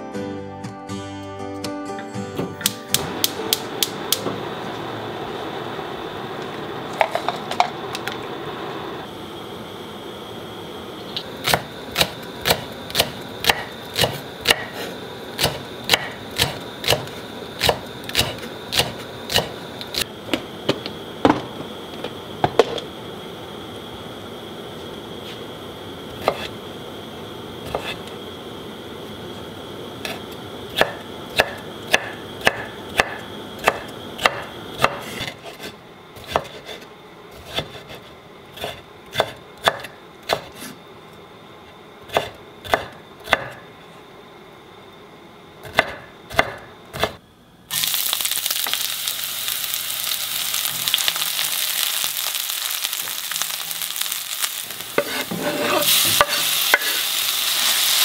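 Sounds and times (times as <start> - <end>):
onions sizzling in hot oil: 3.1 - 35.2, 47.7 - 58.0
knife chopping on wooden board: 11.4 - 14.8, 15.4 - 19.5, 26.2 - 26.5, 27.7 - 28.0, 30.8 - 36.8, 38.6 - 40.7, 42.1 - 43.6, 45.6 - 47.2, 55.0 - 56.9.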